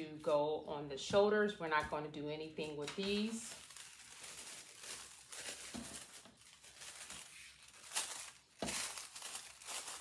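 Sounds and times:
paper rustling and crinkling: 2.6s - 10.0s
sharp paper crackle: 2.6s - 10.0s.

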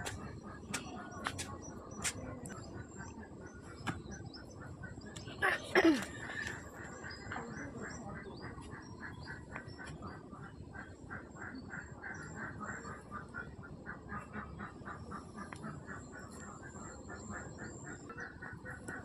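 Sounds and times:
ducks quacking: 0.0s - 19.0s.

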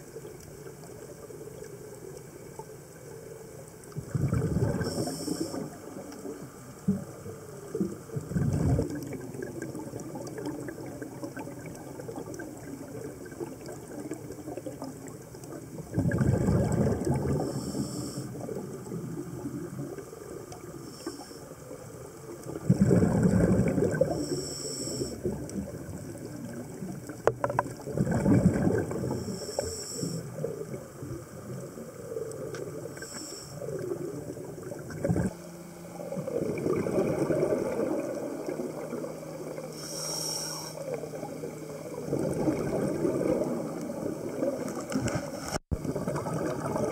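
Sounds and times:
bubbles gushing underwater: 3.9s - 20.8s, 22.2s - 24.3s, 25.2s - 29.4s, 33.6s - 39.7s, 40.9s - 46.9s
regulator hissing: 39.7s - 40.9s.

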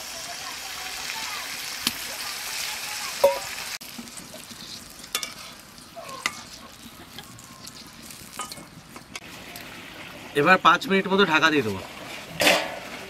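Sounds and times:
low sizzle: 0.0s - 13.0s
metal spatula scraping pan: 4.2s - 9.2s.

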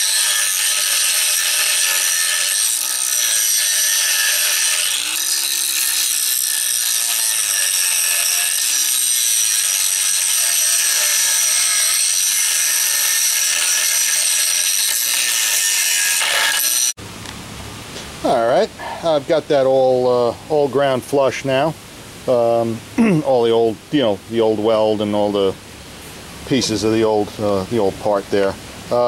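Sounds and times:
angle grinder grinding metal: 0.0s - 17.0s.

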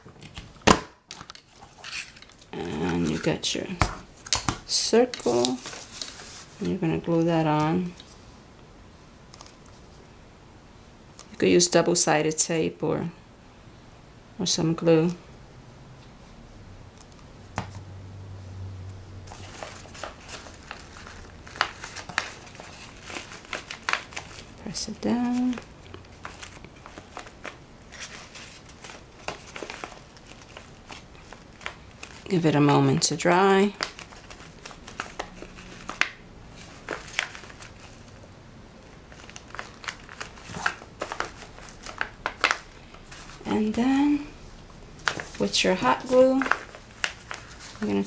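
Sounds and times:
paper bag rustling: 5.2s - 6.8s, 19.3s - 38.2s, 38.8s - 44.0s, 45.0s - 48.0s.

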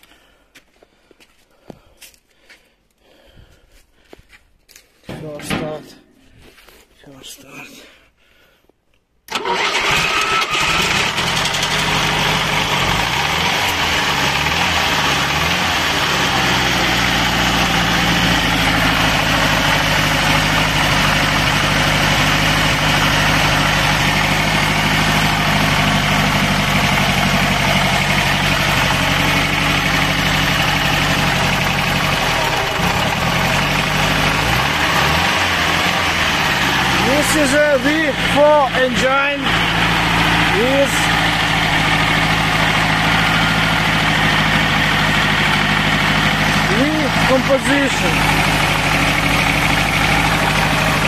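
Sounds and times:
car engine starting and idling: 9.3s - 51.0s.

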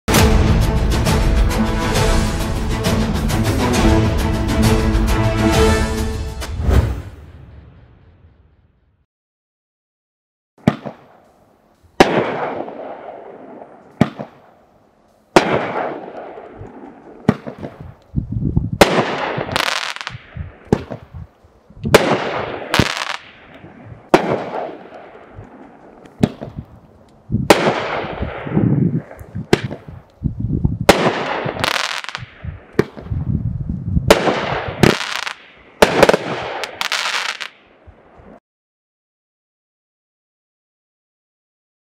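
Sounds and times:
fireworks cake firing sharp bangs: 10.6s - 11.2s, 12.0s - 14.5s, 15.3s - 18.0s, 18.8s - 21.1s, 21.9s - 26.6s, 27.5s - 29.9s, 30.9s - 33.1s, 34.1s - 37.5s.

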